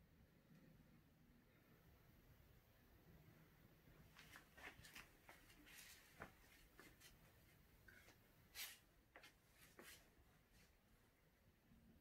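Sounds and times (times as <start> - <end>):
faint rustles and taps: 4.0 - 10.7.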